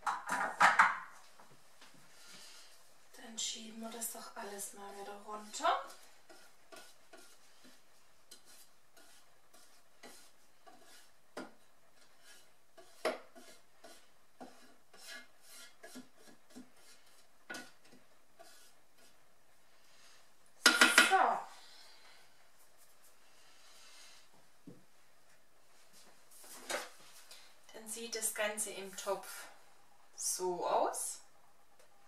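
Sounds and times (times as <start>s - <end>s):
spatula scraping steel bowl: 4.0s - 11.2s, 12.0s - 19.2s.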